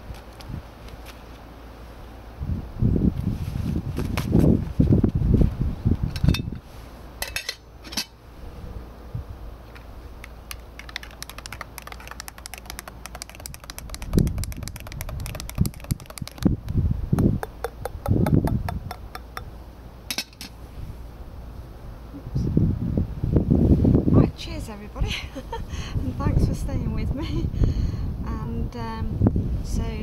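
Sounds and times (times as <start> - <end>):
mug and pot knocking: 10.8 - 16.5, 17.2 - 19.5.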